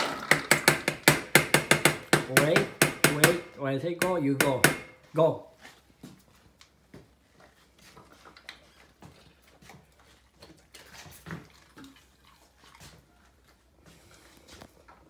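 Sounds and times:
dog chewing food: 7.4s - 15.0s.

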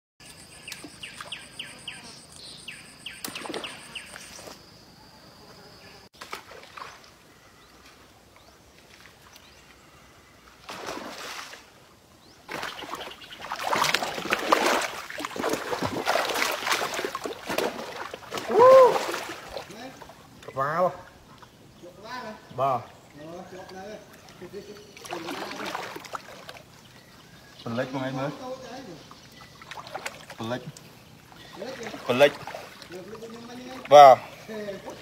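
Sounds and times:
birds chirping: 0.2s - 6.1s, 11.7s - 17.3s, 17.9s - 35.0s
high insect drone: 0.2s - 6.1s
water splashing and sloshing: 3.2s - 4.6s, 6.2s - 35.0s.

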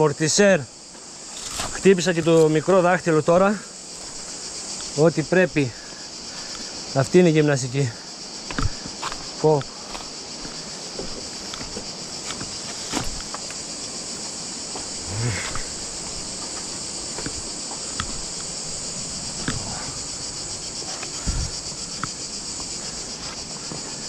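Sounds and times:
insects chorus: 0.0s - 24.0s
footsteps on rock: 0.9s - 5.0s, 8.3s - 13.8s, 14.7s - 24.0s
dull thump: 10.9s - 13.4s.

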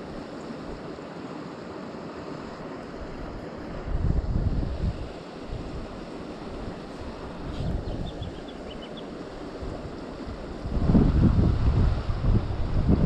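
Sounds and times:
stream flowing: 0.0s - 13.0s
wind gusting over microphone: 2.5s - 13.0s
bird chirping: 7.5s - 9.2s.

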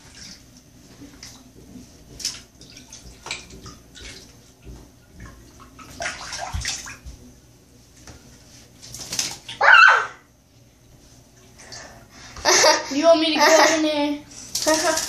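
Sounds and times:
water splashing in a bathtub: 0.0s - 15.0s.

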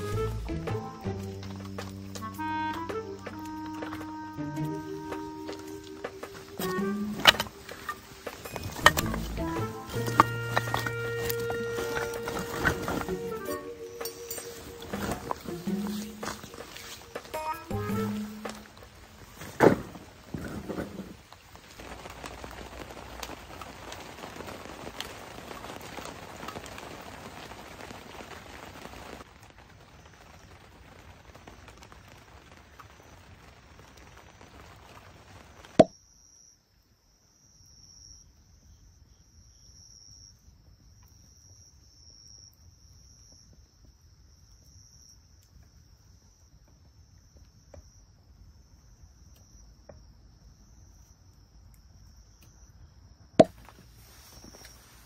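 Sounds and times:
noisy pattering: 0.0s - 35.8s
crickets chirping: 0.6s - 55.0s.

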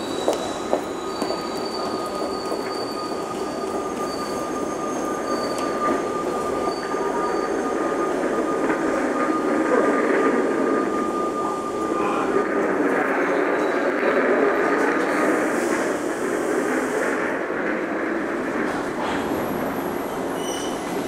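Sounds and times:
high wheel squeal: 0.0s - 13.9s, 19.4s - 21.0s
metro train rumble: 0.0s - 21.0s.

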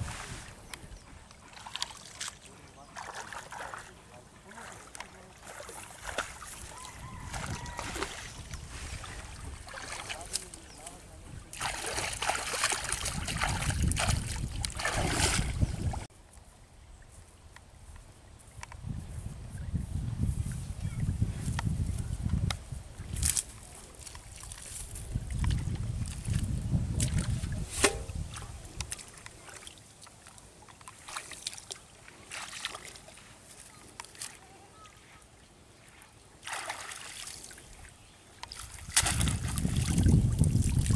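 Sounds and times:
wading through shallow water: 0.0s - 16.1s, 23.1s - 40.9s
faint outdoor background: 15.5s - 39.0s
metal bowl clanking: 27.7s - 28.2s.

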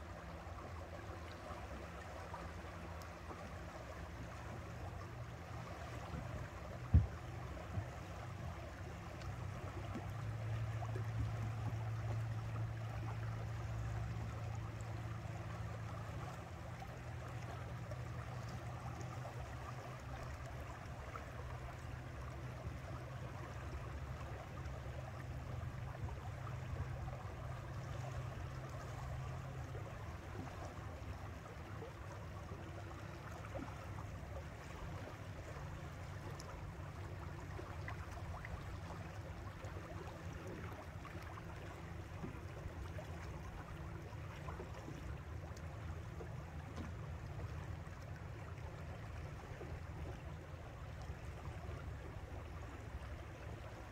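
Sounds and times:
water rushing past boat hull: 0.0s - 53.9s.

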